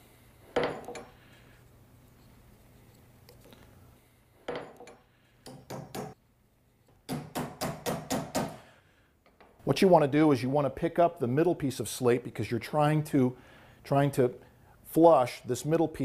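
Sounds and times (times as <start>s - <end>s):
wooden wedges being tapped: 4.5s - 6.2s.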